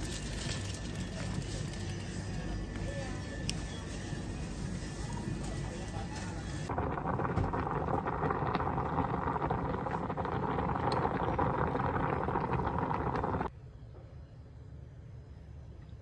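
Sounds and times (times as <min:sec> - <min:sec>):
water boiling in a pot: 0:03.3 - 0:13.5.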